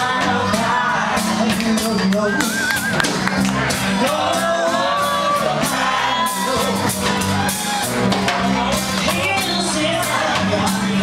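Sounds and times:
drum kit steady beat: 0.0 - 11.0
woman singing into microphone: 9.0 - 11.0.

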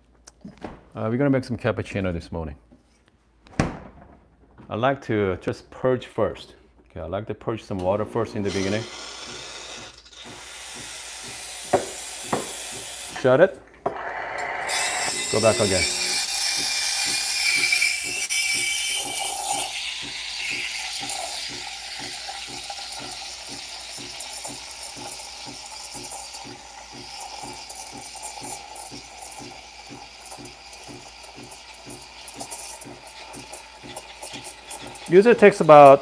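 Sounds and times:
steam wand hissing in milk: 8.4 - 13.2, 14.2 - 36.0.

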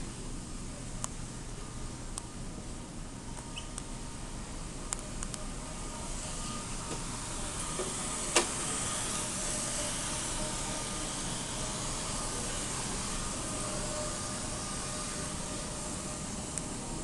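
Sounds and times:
air handling hiss: 3.4 - 17.0.

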